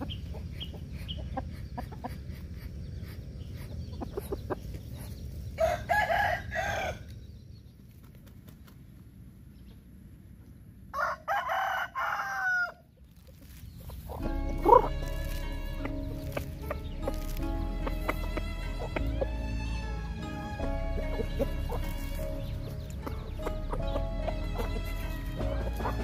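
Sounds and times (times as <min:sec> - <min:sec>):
chickens clucking softly: 0:00.0 - 0:05.8
rooster crowing: 0:05.6 - 0:07.1, 0:10.9 - 0:12.8.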